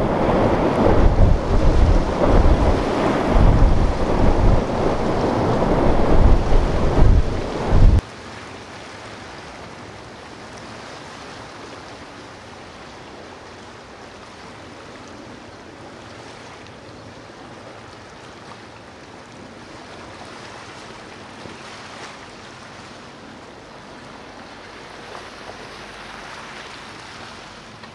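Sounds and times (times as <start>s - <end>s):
ocean surf rushing: 0.0s - 8.0s.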